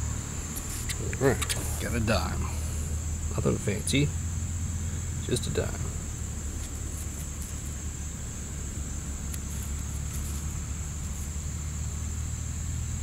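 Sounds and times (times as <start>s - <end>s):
constant low rumble: 0.0s - 13.0s
steady high-pitched buzz: 0.0s - 13.0s
fingers scratching in dirt: 0.5s - 2.0s, 6.5s - 7.8s, 9.3s - 11.4s.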